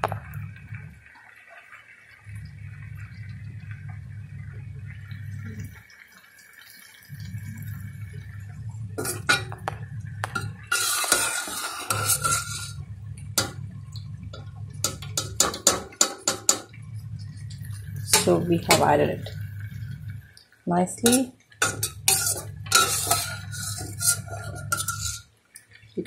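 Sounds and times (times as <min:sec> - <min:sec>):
steady low hum: 0:00.0 - 0:01.1, 0:02.3 - 0:05.8, 0:07.1 - 0:25.2
metal spoon scraping in a pan: 0:09.0 - 0:09.6, 0:10.2 - 0:12.8, 0:14.8 - 0:19.2, 0:21.0 - 0:25.3.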